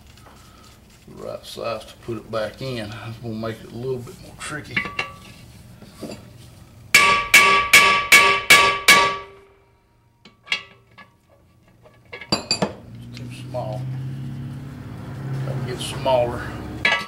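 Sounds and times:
hammer striking metal: 6.9 - 9.5.

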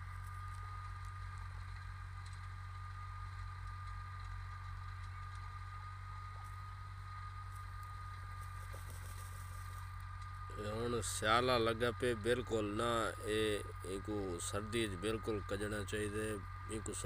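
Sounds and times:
low mechanical drone: 0.0 - 17.0.

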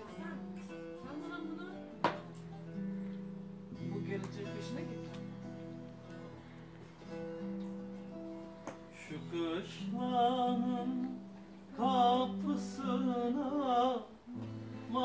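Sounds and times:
person singing folk song: 0.0 - 3.2, 8.4 - 15.0.

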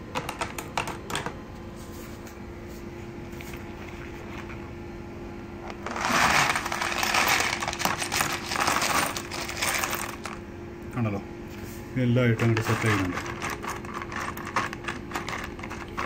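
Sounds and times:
low steady hum: 0.0 - 16.0
metal screws clattering into tub: 5.8 - 10.4, 12.6 - 16.0.

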